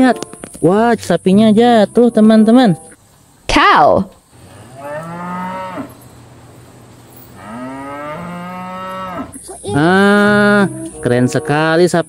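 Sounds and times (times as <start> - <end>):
cattle mooing: 4.4 - 6.0, 7.4 - 11.0.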